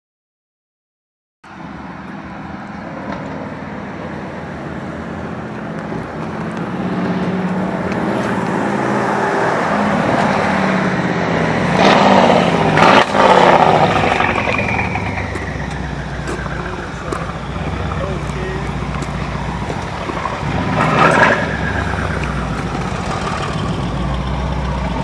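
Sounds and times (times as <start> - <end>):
car exhaust accelerating past: 5.8 - 25.0.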